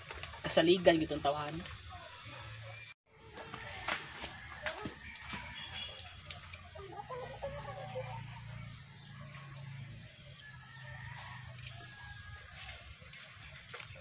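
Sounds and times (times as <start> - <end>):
chickens clucking: 4.6 - 9.4.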